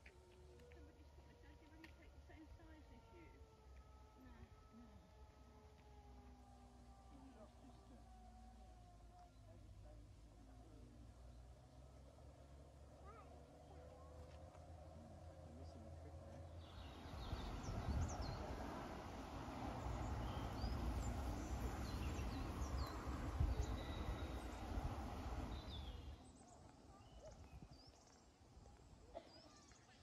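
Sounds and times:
birds chirping: 16.4 - 28.4
wind buffeting the microphone: 16.8 - 26.1.

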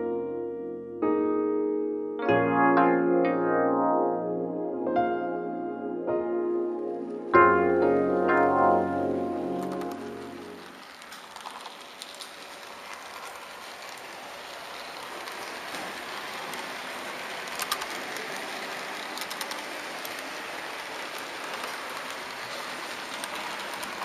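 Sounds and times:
model train wheels rattling: 8.3 - 24.0
sharp clicks: 17.5 - 18.4.

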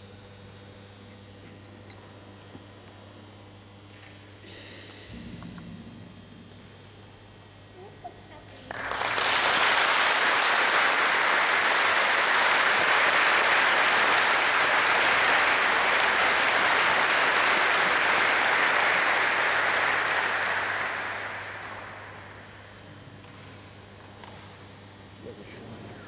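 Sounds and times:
group applauding: 8.5 - 23.4.

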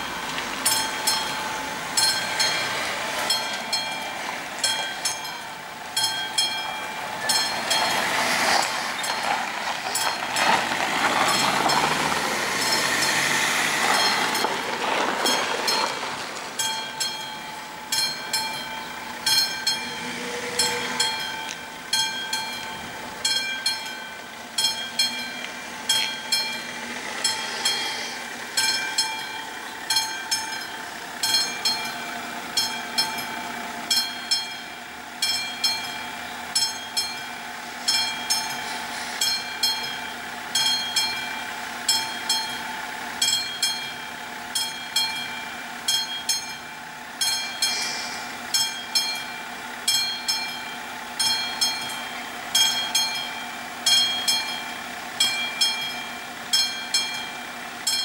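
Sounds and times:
level crossing warning bell: 0.0 - 8.3, 11.2 - 16.0, 16.6 - 58.0.

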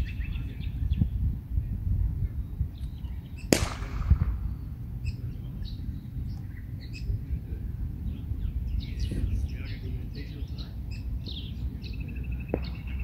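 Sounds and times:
small birds chirping: 0.0 - 13.0
sharp crack: 3.5 - 4.7.

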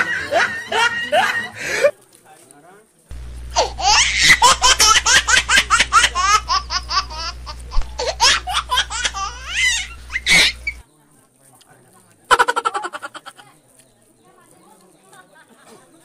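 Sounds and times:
hearty laughter: 0.0 - 1.9, 3.6 - 10.8
steady low hum: 3.1 - 10.8.

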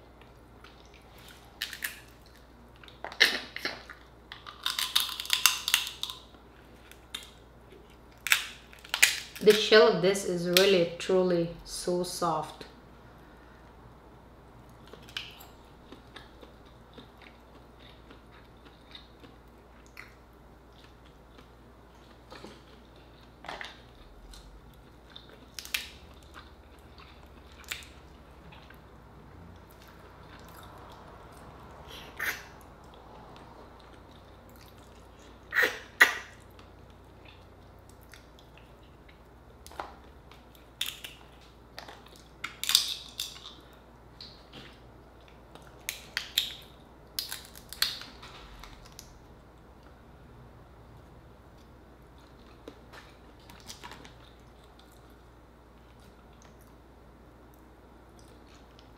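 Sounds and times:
chewing and mouth sounds: 0.1 - 9.6, 14.6 - 49.2
crab shell cracking: 4.4 - 6.2, 8.2 - 9.5, 47.2 - 48.1.

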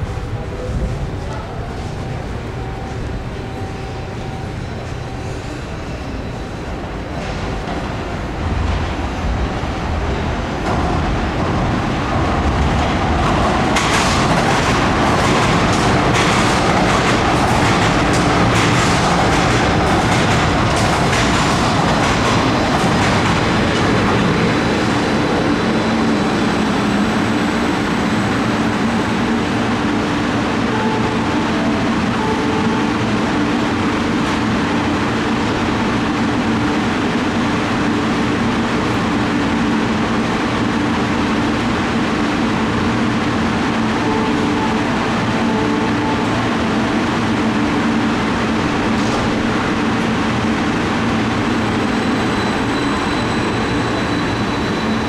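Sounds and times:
train hum with low tones: 0.0 - 55.0
train rumble: 0.0 - 55.0
train wheels clicking over rail joints: 13.3 - 24.1.

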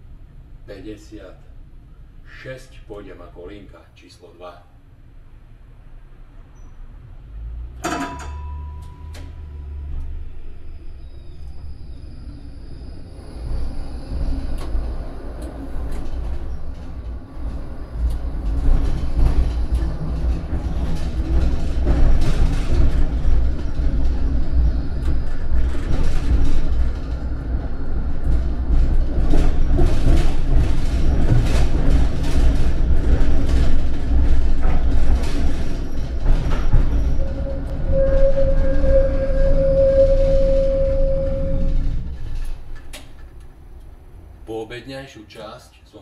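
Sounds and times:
tram rumbling on rails: 0.0 - 45.6
wheels clicking over track: 14.2 - 44.0.

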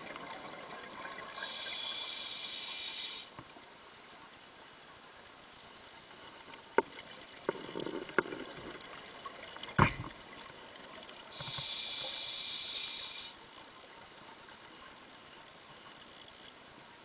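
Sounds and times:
breath through diving regulator: 1.4 - 3.3, 11.3 - 13.4
underwater clicks and knocks: 6.7 - 8.8, 9.6 - 10.2
underwater thump: 9.7 - 10.2.

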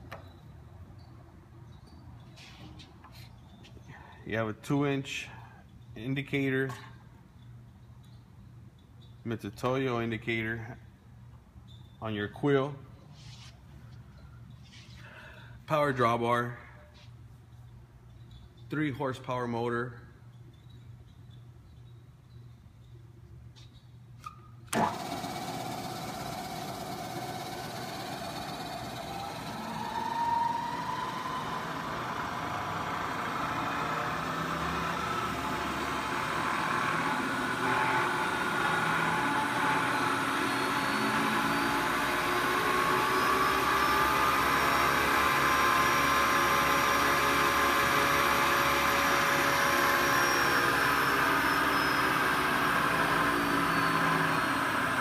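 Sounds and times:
milling machine motor running: 24.7 - 55.0.

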